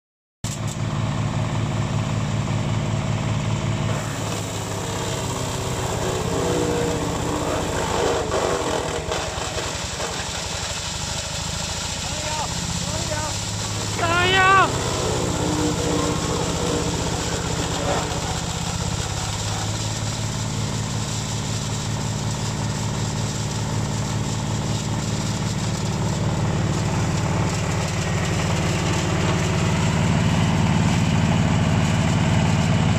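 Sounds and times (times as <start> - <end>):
wood chipper humming: 0.5 - 32.9
rush of wood chips thrown out: 3.9 - 32.9.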